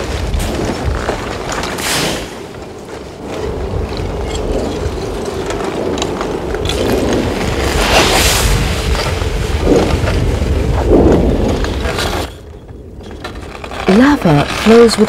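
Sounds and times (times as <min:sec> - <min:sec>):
lava crust cracking and crumbling: 0:00.0 - 0:15.0
rock breaking and tumbling: 0:00.0 - 0:15.0
low rumble: 0:02.5 - 0:14.6.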